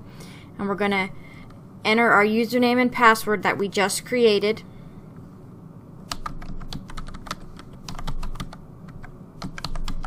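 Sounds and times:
typing on computer keyboard: 0:06.1 - 0:10.0.

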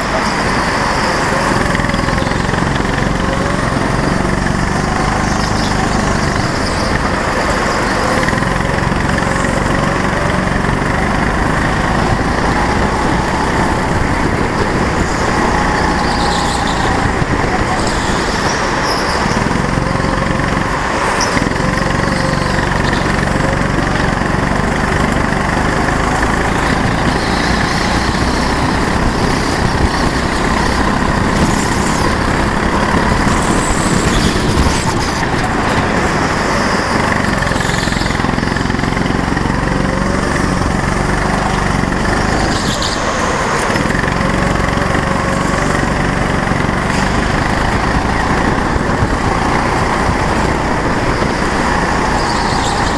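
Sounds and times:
go-kart engine running: 0:00.0 - 0:52.9.

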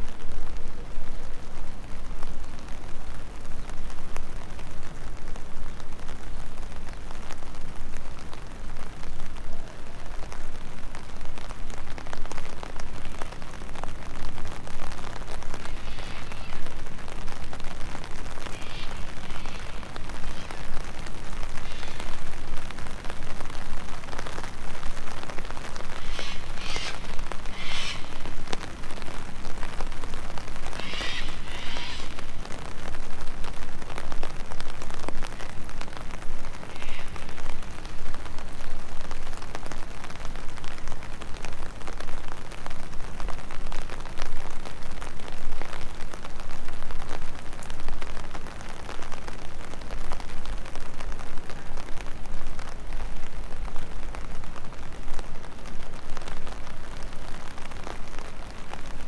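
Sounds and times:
raindrops ticking close by: 0:00.0 - 0:59.0
steady rain falling: 0:00.0 - 0:59.0.

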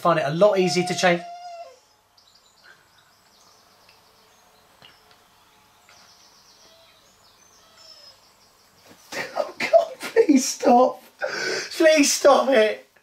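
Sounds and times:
dogs whining faintly: 0:00.5 - 0:01.9, 0:06.5 - 0:09.0.

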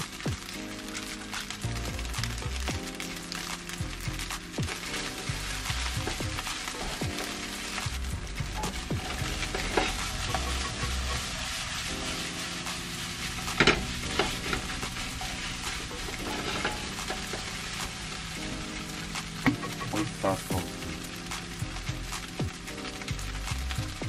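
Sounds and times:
rice sizzling in a frying pan: 0:00.0 - 0:24.0
spatula scraping and knocking pan: 0:04.6 - 0:18.4.

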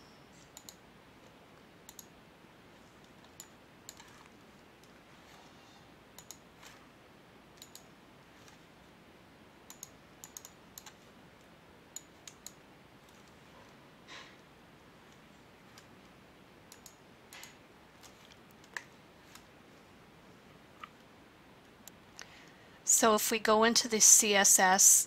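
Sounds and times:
room hiss: 0:00.0 - 0:25.0
computer clicks: 0:00.4 - 0:02.2, 0:03.0 - 0:05.0, 0:06.1 - 0:06.8, 0:07.5 - 0:08.6, 0:09.6 - 0:13.8, 0:16.7 - 0:19.5.

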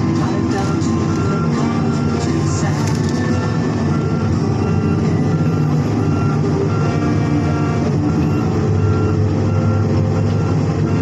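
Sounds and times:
diesel engine running under load: 0:00.0 - 0:11.0
short repeating beep: 0:00.2 - 0:02.6.

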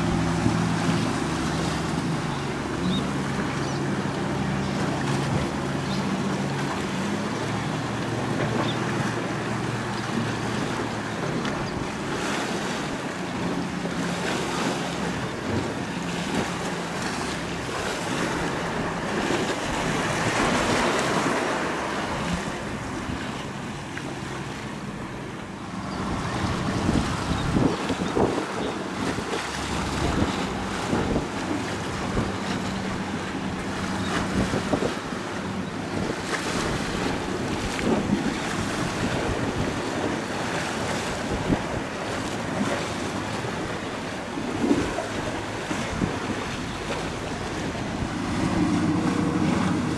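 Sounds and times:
boat engine droning: 0:00.0 - 0:49.9
waves washing: 0:00.0 - 0:49.9
wind buffeting microphone: 0:24.6 - 0:49.9.

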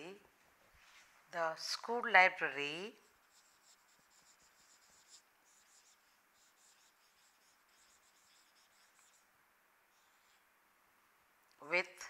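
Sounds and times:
marker scratching on whiteboard: 0:03.0 - 0:09.3, 0:09.9 - 0:10.4.

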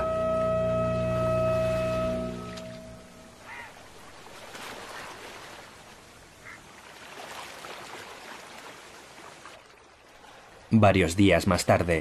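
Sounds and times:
river water rushing: 0:01.6 - 0:10.7.

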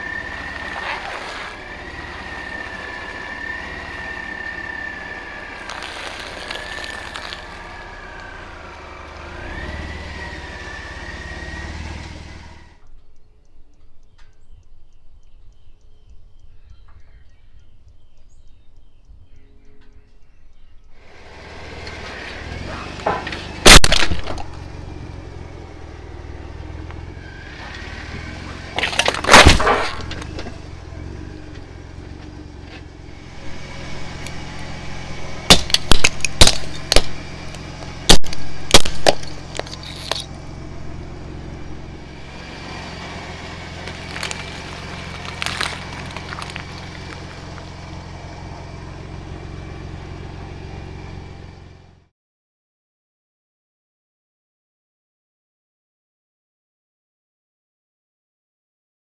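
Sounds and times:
tire crushing objects: 0:00.0 - 0:12.8, 0:21.0 - 0:51.9
truck engine running low: 0:00.0 - 0:12.8, 0:20.9 - 0:52.1
plastic toys cracking: 0:05.6 - 0:07.6, 0:23.7 - 0:24.6, 0:28.8 - 0:30.4, 0:35.5 - 0:37.2, 0:37.8 - 0:40.3, 0:43.8 - 0:47.6.

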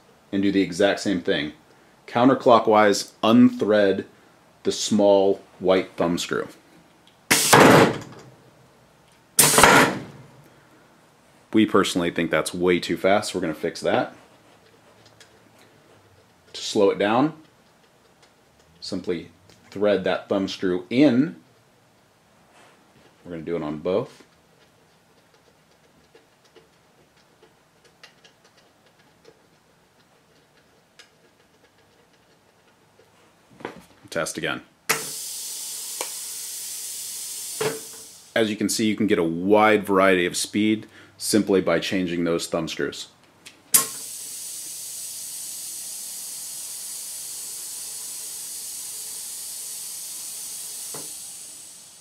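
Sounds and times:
compressed air hissing: 0:07.3 - 0:08.3, 0:09.4 - 0:10.3, 0:34.9 - 0:38.6, 0:43.7 - 0:52.0
sharp valve click: 0:09.4 - 0:10.2, 0:34.9 - 0:35.2, 0:43.7 - 0:45.9.

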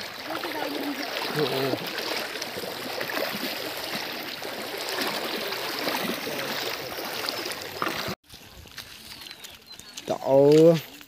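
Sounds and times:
river water flowing: 0:00.0 - 0:08.2.

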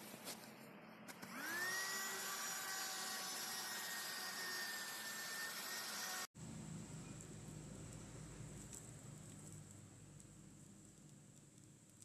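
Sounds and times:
small vacuum motor whine: 0:01.1 - 0:06.3.

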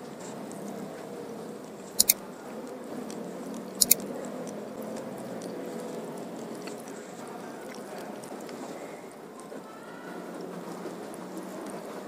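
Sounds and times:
chewing and mouth sounds: 0:01.6 - 0:09.5
sharp clicks: 0:02.0 - 0:02.2, 0:03.8 - 0:04.0.

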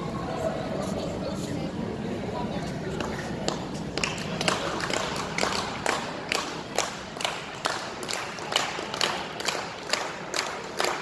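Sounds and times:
audience clapping in rhythm: 0:03.4 - 0:11.0.

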